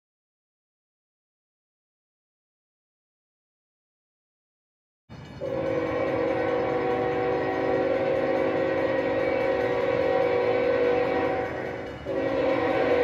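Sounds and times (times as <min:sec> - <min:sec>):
train rumbling: 0:05.1 - 0:13.0
locomotive air horn: 0:05.4 - 0:13.0.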